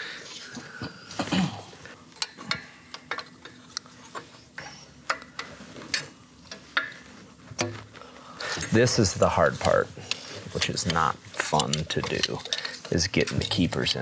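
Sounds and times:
small metallic clicks and clinks: 0:02.1 - 0:06.9, 0:10.1 - 0:13.7.

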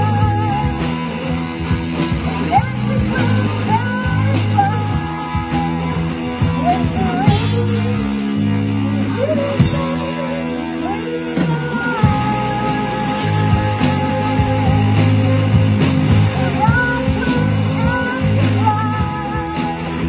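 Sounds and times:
bass guitar: 0:00.0 - 0:20.0
drum kit: 0:00.0 - 0:20.0
electric guitar: 0:00.0 - 0:20.0
woman singing: 0:00.0 - 0:20.0.

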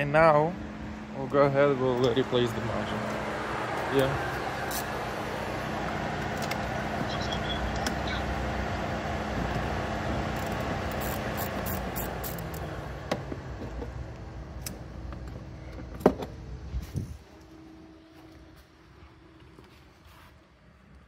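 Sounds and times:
vehicle engine running: 0:00.0 - 0:16.6.

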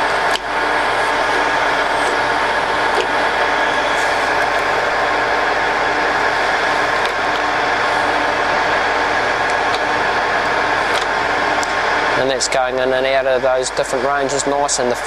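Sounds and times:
lathe running: 0:00.0 - 0:15.0.

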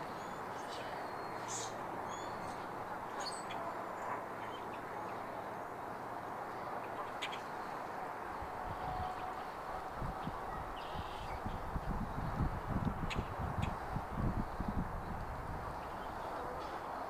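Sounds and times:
wind buffeting on microphone: 0:08.2 - 0:17.0.

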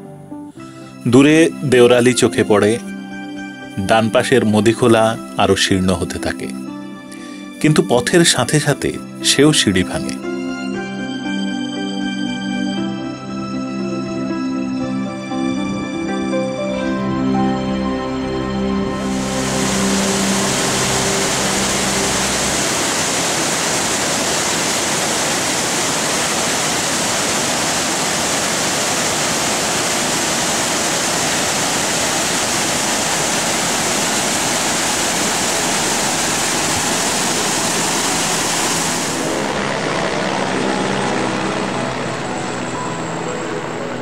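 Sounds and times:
soft music: 0:00.0 - 0:25.6, 0:31.5 - 0:44.0
river rushing: 0:19.0 - 0:44.0.

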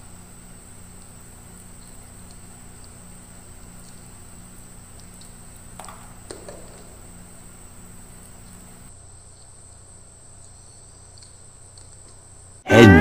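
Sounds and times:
faint ticks: 0:00.0 - 0:08.9.

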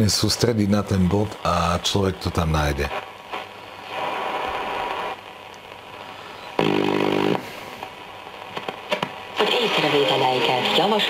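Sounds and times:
radio shortwave static: 0:00.0 - 0:11.0
radio station tone: 0:06.3 - 0:07.5, 0:09.4 - 0:11.0.

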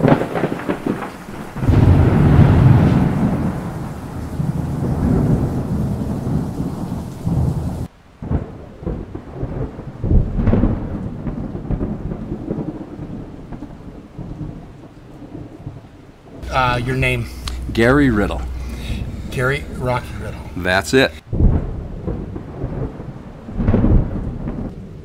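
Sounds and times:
rain hissing: 0:00.0 - 0:08.3, 0:16.3 - 0:21.6
thunder rumbling: 0:00.0 - 0:25.0.

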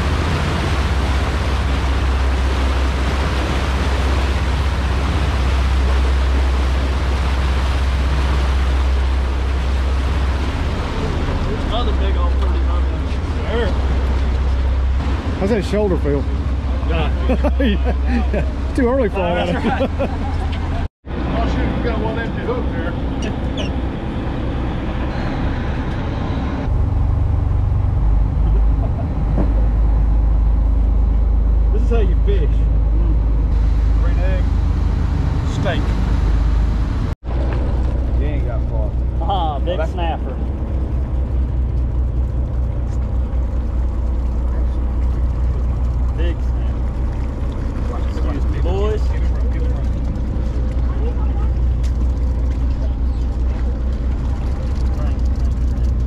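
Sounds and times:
boat engine drone: 0:00.0 - 0:56.0
rush of wind and water: 0:00.0 - 0:56.0.

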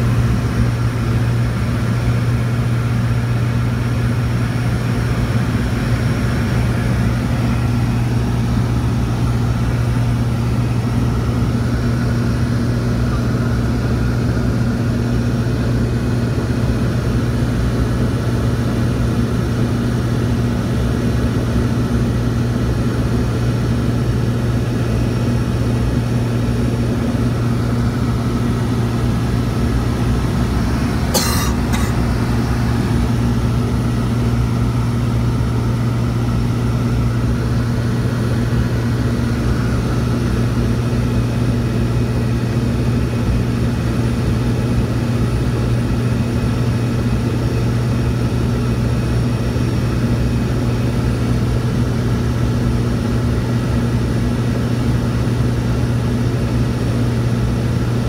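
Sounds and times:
propeller airplane engine drone: 0:00.0 - 0:58.0.

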